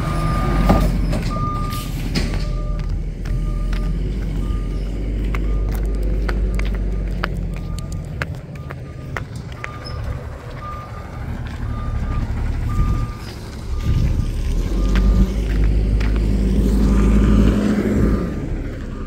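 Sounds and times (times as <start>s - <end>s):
truck engine rumble: 0.0s - 19.0s
backup alarm beeping: 0.1s - 15.5s, 17.9s - 19.0s.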